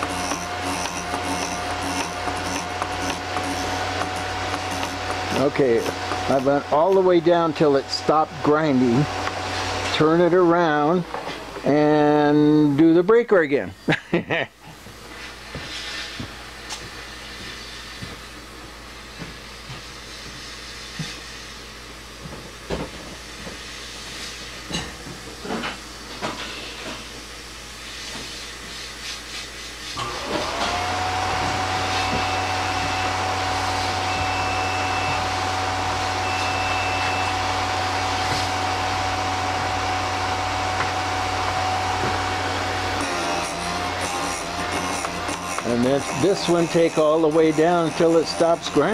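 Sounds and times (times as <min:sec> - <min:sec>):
grinder motor whining: 0:00.0 - 0:10.2, 0:30.0 - 0:48.9.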